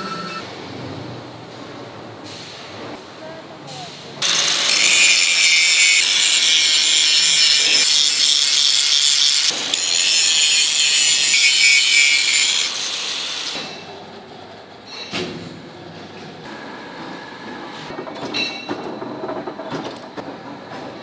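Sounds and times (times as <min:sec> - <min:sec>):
angle grinder grinding steel: 0:04.2 - 0:13.6.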